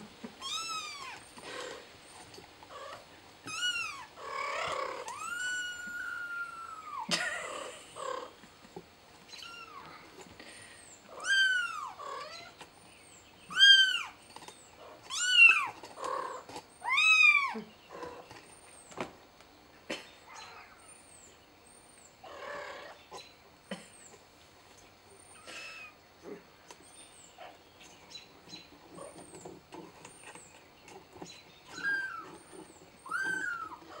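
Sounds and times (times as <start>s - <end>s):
kitten meowing: 33.0s - 33.8s.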